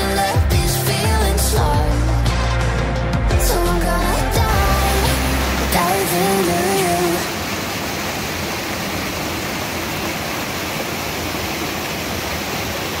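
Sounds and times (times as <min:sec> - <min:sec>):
creek water rushing over rocks: 0:03.4 - 0:13.0.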